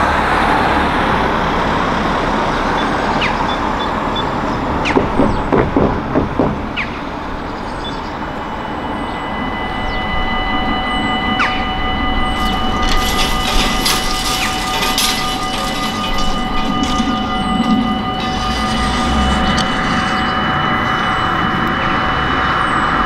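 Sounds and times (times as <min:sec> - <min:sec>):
road traffic: 0:00.0 - 0:23.0
level crossing warning bells ringing: 0:07.0 - 0:23.0.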